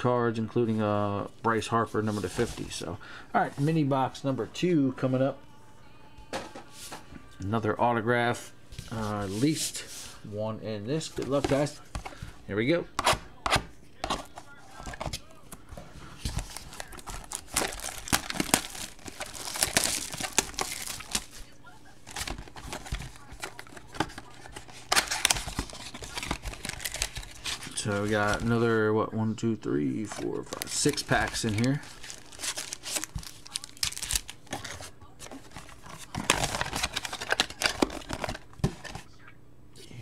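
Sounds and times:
cardboard box crinkling and tearing: 0:16.3 - 0:21.4, 0:22.0 - 0:28.5, 0:30.0 - 0:39.0.

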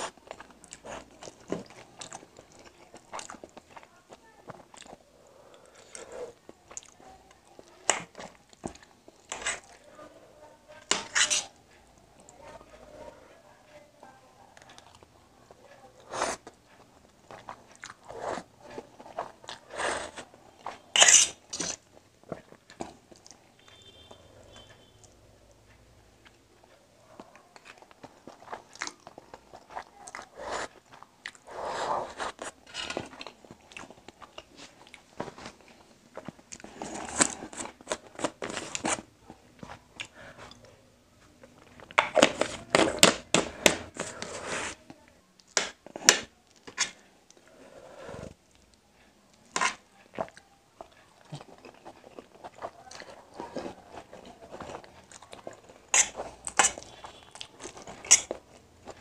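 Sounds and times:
person chewing and biting: 0:00.0 - 0:03.8, 0:49.7 - 0:59.0.

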